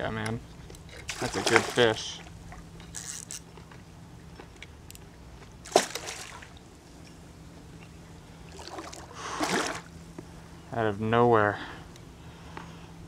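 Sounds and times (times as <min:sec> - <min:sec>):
faint low hum: 0:00.0 - 0:13.0
fish splashing in water: 0:01.1 - 0:02.0, 0:05.6 - 0:06.6, 0:08.5 - 0:09.9.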